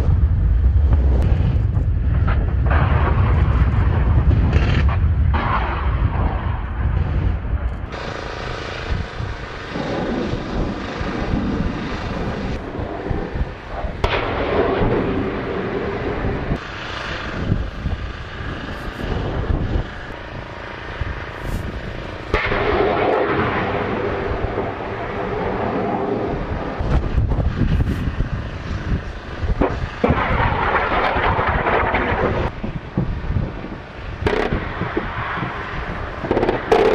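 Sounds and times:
aircraft engines: 0:00.0 - 0:36.9
vehicle engines: 0:00.0 - 0:36.9
artillery fire: 0:00.1 - 0:16.7, 0:22.2 - 0:27.9, 0:29.5 - 0:32.6, 0:34.2 - 0:36.9.

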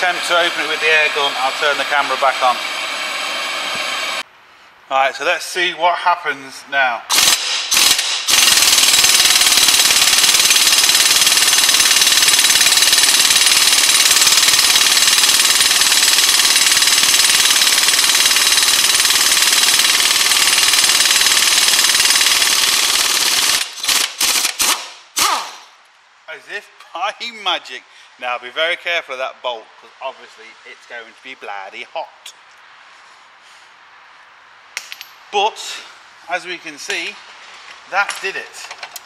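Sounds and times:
impact wrench hammering: 0:07.1 - 0:24.9, 0:34.8 - 0:35.2.

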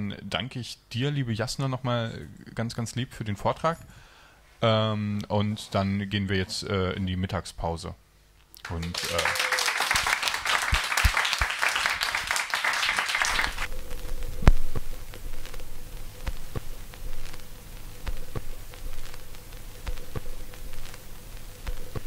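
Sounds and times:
faint steady hum: 0:00.0 - 0:22.0
audience applauding: 0:08.6 - 0:13.7.

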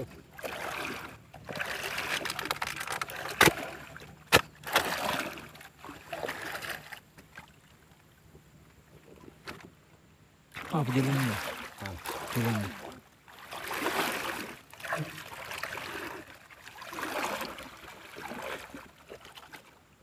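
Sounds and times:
paddle splashing water: 0:00.0 - 0:20.0.

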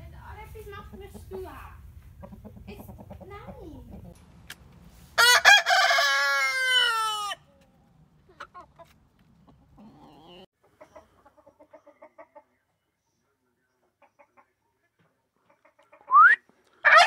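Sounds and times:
hens clucking: 0:00.6 - 0:04.2, 0:06.8 - 0:12.7
rooster crowing: 0:05.2 - 0:07.4
turkey calling: 0:16.0 - 0:17.0.

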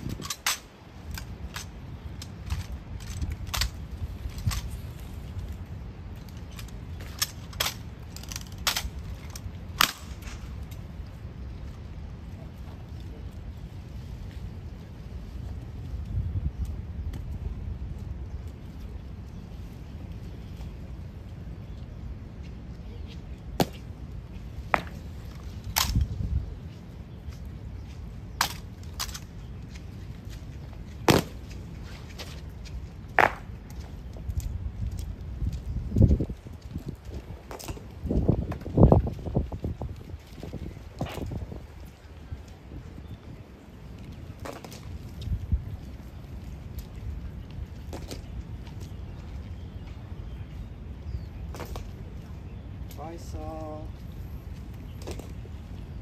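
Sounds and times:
clicks and knocks of rifles: 0:00.0 - 0:05.6, 0:06.2 - 0:10.9, 0:24.7 - 0:26.2, 0:27.3 - 0:38.8, 0:51.4 - 0:52.2.

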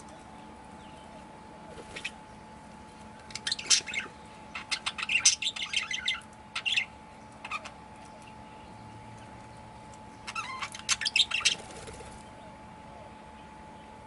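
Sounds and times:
budgerigars chirping: 0:03.3 - 0:07.8, 0:10.2 - 0:12.0.

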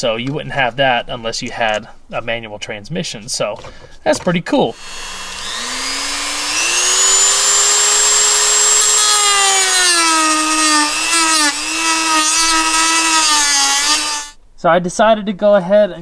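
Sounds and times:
rotary tool cutting plastic: 0:04.8 - 0:14.4.

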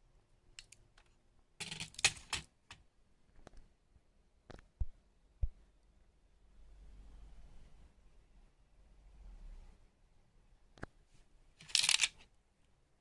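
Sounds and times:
plastic clicks and rattles: 0:00.6 - 0:02.8, 0:11.6 - 0:12.2.

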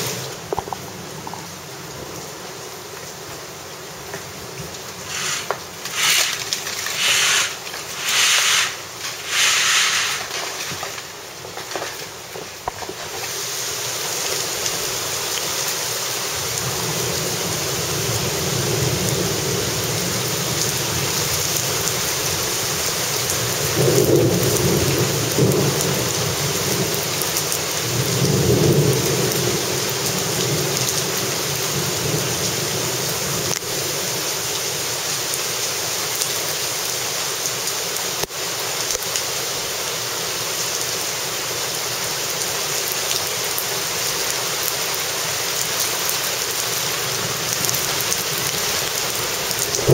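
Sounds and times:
heavy rain splashing into water: 0:00.0 - 0:49.9.

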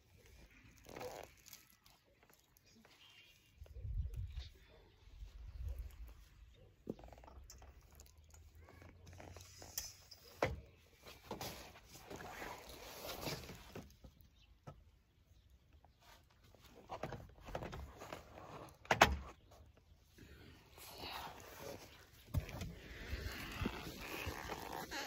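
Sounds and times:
canvas rustling: 0:00.0 - 0:06.5, 0:11.0 - 0:13.9, 0:20.6 - 0:25.0.

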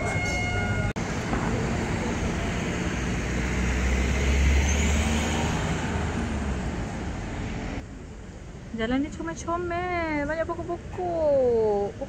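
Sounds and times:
passing vehicle rumble: 0:00.0 - 0:08.3
steady street noise: 0:00.0 - 0:12.0.

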